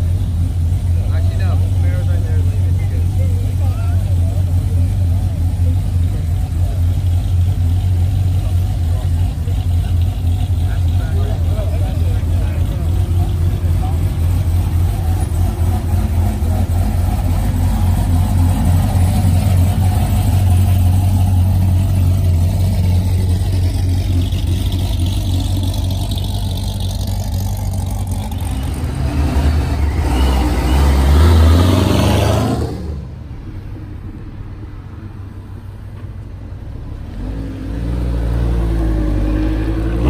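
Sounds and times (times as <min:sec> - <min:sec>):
deep car exhaust rumble: 0:00.0 - 0:34.5
car accelerating past: 0:28.3 - 0:33.2.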